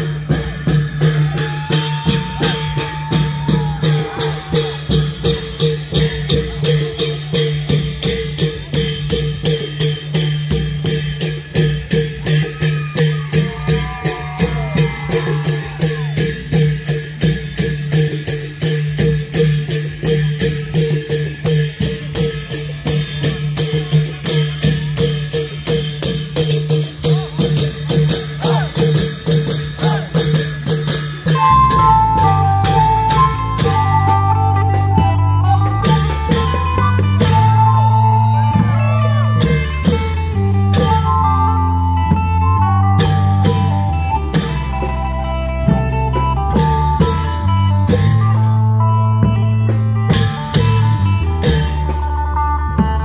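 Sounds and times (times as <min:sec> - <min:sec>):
long drums playing rhythm: 0:00.0 - 0:53.0
melody line: 0:31.3 - 0:49.3.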